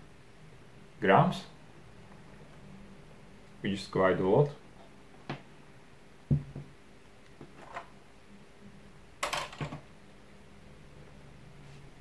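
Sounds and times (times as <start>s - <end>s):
rotary tool knocking on table: 6.3s - 6.7s
objects clattering on table: 7.4s - 7.9s, 9.2s - 9.9s.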